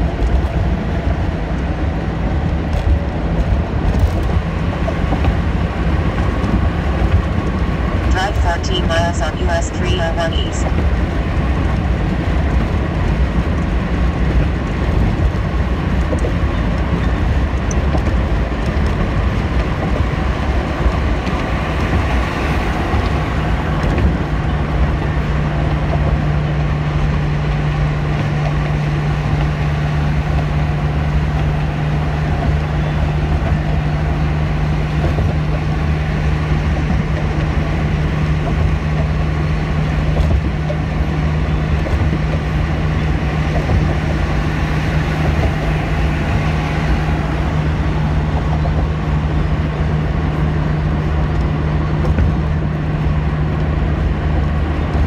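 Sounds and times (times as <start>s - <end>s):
car road and engine noise: 0.0s - 55.0s
steady low hum: 8.0s - 11.0s.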